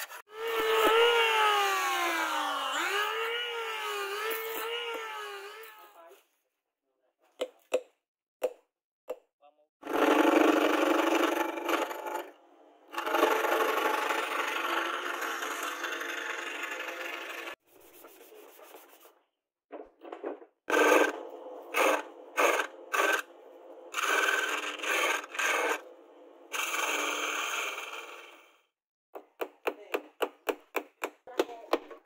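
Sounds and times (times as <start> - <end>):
chisel scraping wood on lathe: 13.0 - 19.0, 20.7 - 28.5.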